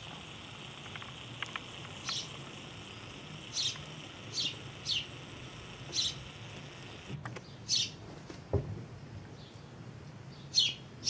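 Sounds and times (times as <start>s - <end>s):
low background hum: 0.0s - 11.0s
sparrow chirping: 0.9s - 2.5s, 3.4s - 5.2s, 5.9s - 6.3s, 7.7s - 8.0s, 10.4s - 10.8s.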